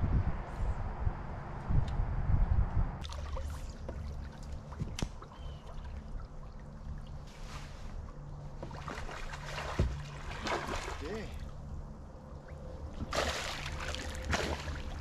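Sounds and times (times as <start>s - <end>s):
low steady hum: 0.0s - 15.0s
water lapping against boat hull: 3.0s - 11.7s, 12.4s - 15.0s.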